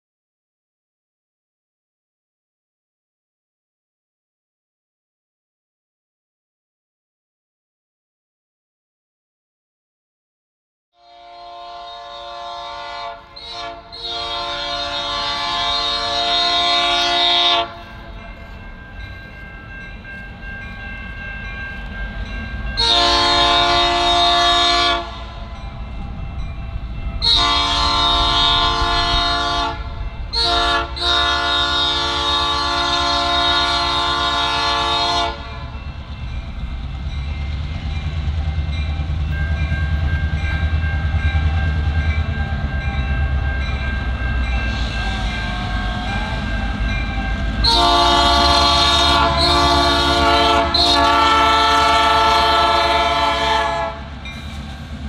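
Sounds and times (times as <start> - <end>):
locomotive air horn blasts: 11.0 - 17.8, 22.7 - 25.4, 27.2 - 35.8, 44.4 - 54.2.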